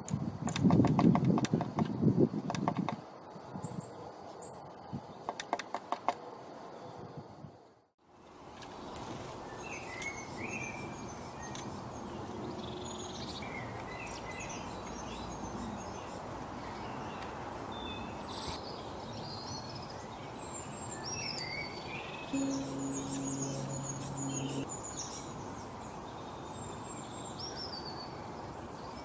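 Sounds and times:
outdoor background hiss: 0:00.0 - 0:29.0
songbirds chirping: 0:08.2 - 0:29.0.

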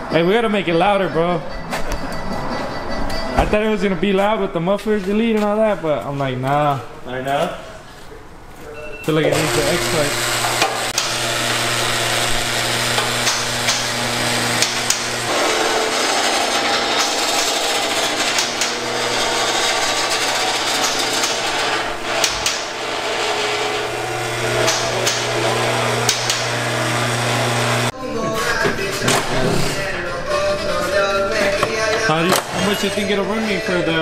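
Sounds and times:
hydraulic pump motor humming: 0:09.3 - 0:27.9.

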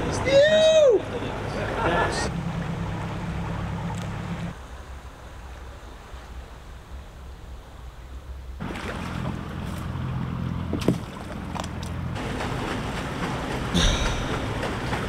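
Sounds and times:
boat engine running: 0:00.0 - 0:04.6, 0:08.6 - 0:15.0
water splashing: 0:08.6 - 0:15.0.

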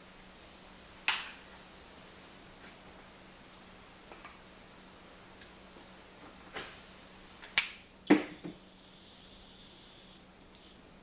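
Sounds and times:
airbrush air hiss: 0:00.0 - 0:02.5, 0:06.5 - 0:10.8.

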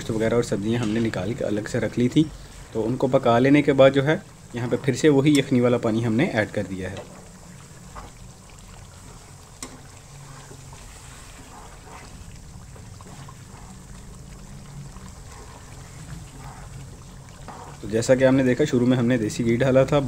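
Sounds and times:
ladle stirring liquid curry: 0:00.1 - 0:19.2
ladle clicking against pan: 0:05.2 - 0:05.6.

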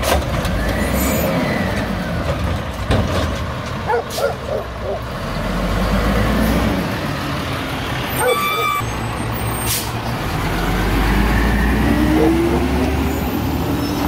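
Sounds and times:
garbage truck diesel engine: 0:00.0 - 0:14.0
short squeal: 0:08.2 - 0:09.9.

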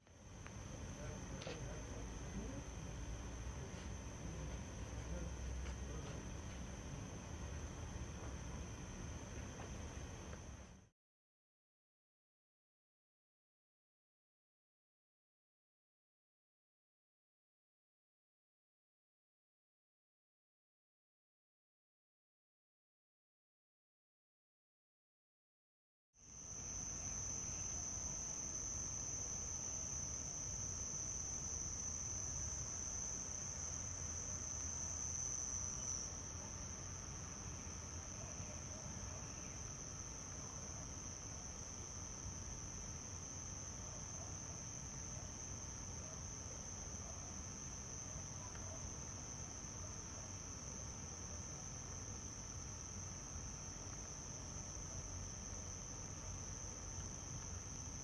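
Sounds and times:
cricket chirping: 0:00.0 - 0:10.8, 0:26.2 - 0:58.0.

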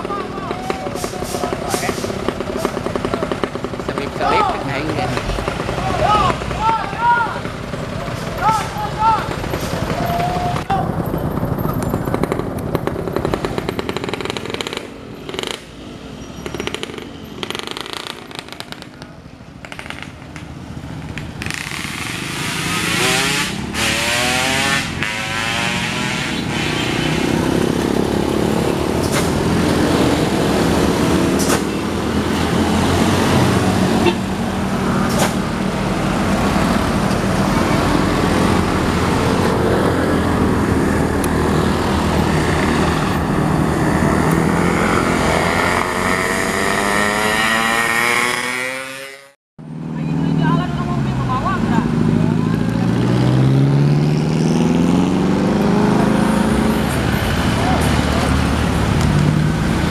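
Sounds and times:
diesel truck engine running: 0:00.0 - 0:15.2
vehicle engine passing by: 0:20.6 - 0:59.9.

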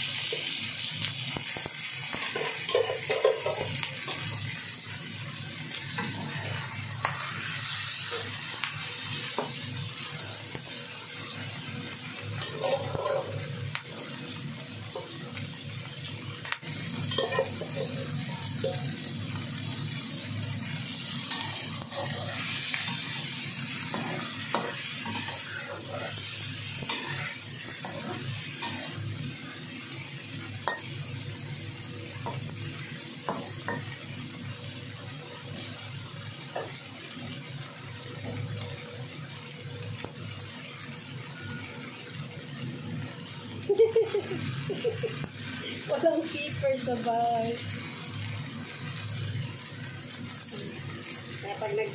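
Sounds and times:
shrimp sizzling in a pan: 0:00.0 - 0:51.9
utensil scraping a pan: 0:12.4 - 0:13.4, 0:21.3 - 0:23.0.

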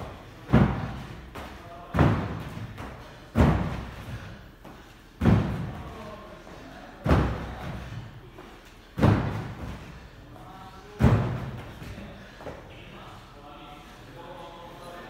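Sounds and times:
feet thudding on gym floor: 0:00.0 - 0:06.0, 0:08.9 - 0:10.0.

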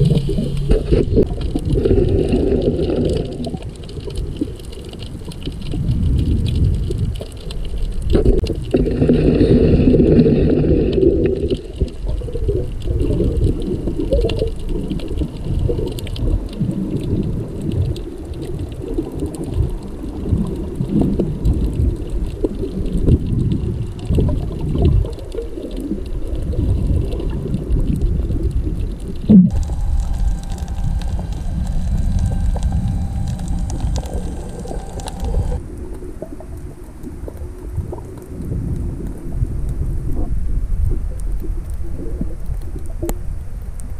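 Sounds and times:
muffled underwater water rumble: 0:00.0 - 0:43.9
humming: 0:29.3 - 0:35.6.

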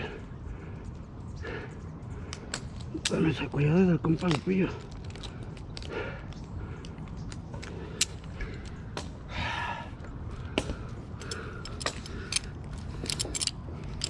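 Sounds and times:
heavy breath: 0:00.0 - 0:02.5, 0:05.0 - 0:14.0
steady low rumble: 0:00.0 - 0:14.0
carabiners clinking: 0:02.1 - 0:09.0, 0:10.3 - 0:14.0.

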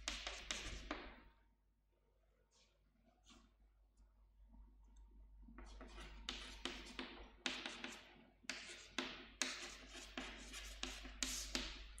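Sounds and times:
chalk writing on chalkboard: 0:00.0 - 0:01.3, 0:05.6 - 0:12.0.

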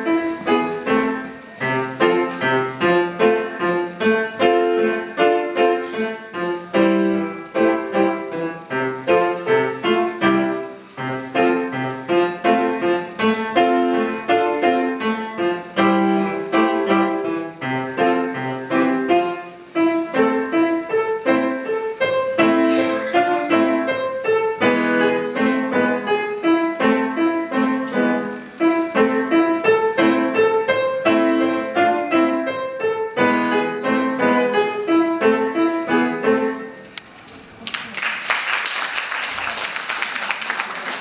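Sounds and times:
grand piano solo: 0:00.0 - 0:37.0
audience applauding: 0:37.6 - 0:41.0.

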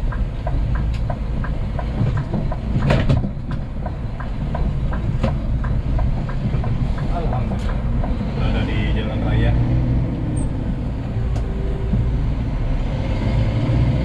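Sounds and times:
regular ticking clicks: 0:00.0 - 0:12.5
truck engine and road rumble: 0:00.0 - 0:14.0
sharp knocks: 0:00.1 - 0:08.4.

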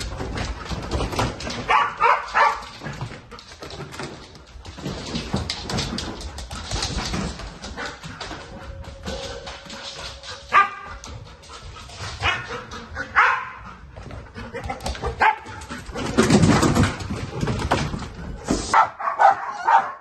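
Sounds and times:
footsteps hurrying down stairs: 0:00.0 - 0:13.0
dog barking: 0:01.7 - 0:02.6, 0:10.5 - 0:10.8, 0:12.2 - 0:13.6, 0:15.2 - 0:15.5, 0:18.7 - 0:20.0.

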